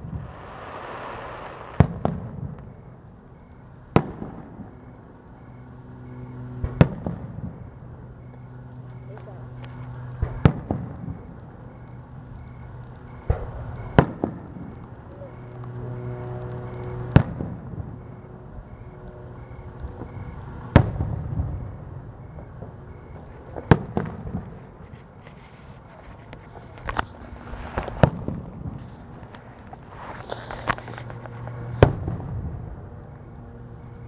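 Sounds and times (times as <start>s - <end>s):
distant firework booms with echo: 0.0s - 3.0s, 20.0s - 24.6s
steady low hum: 0.0s - 34.0s.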